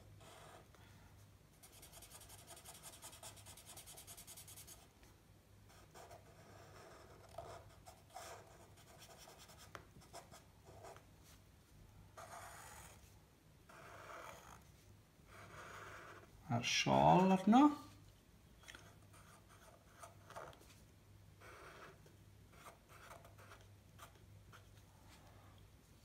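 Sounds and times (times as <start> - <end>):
pencil scratching on paper: 0.0 - 0.7, 1.6 - 4.9, 5.7 - 11.0, 12.2 - 13.1, 13.7 - 16.3, 18.8 - 20.6, 21.4 - 24.7.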